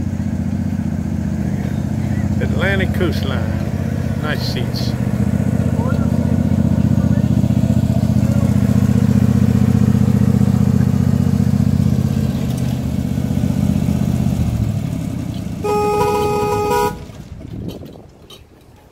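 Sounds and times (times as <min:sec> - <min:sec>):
train horn blast: 0:15.6 - 0:17.1.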